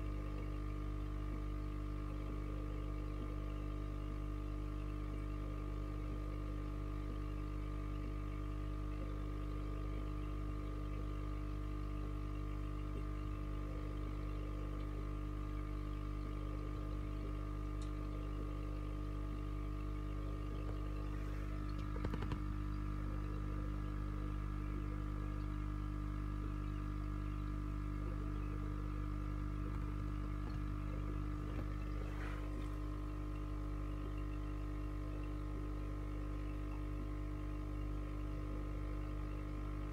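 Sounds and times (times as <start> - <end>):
aquarium pump hum: 0.0 - 39.9.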